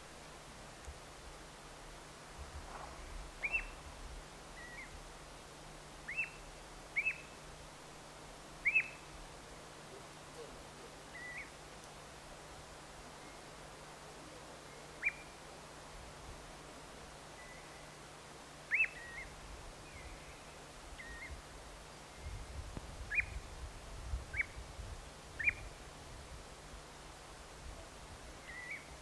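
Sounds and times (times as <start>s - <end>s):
soft bird notes: 2.7s - 3.8s, 9.9s - 12.0s
plover whistled calls: 3.4s - 3.8s, 4.6s - 4.9s, 6.0s - 7.4s, 8.6s - 9.1s, 10.3s - 11.6s, 14.6s - 15.4s, 18.7s - 21.4s, 23.1s - 23.4s, 25.4s - 25.7s, 28.4s - 29.0s.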